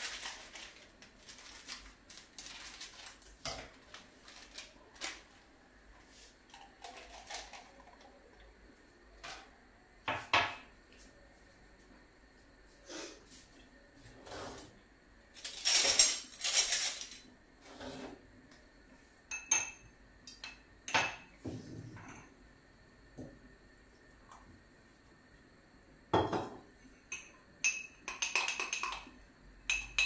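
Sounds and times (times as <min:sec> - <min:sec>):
glass jug and spoon clinking: 0:19.3 - 0:21.3, 0:27.1 - 0:29.1, 0:29.7 - 0:30.0.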